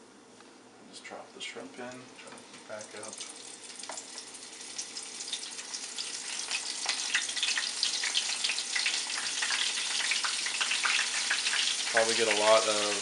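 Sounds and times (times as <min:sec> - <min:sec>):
shrimp sizzling in hot oil: 0:02.7 - 0:13.0.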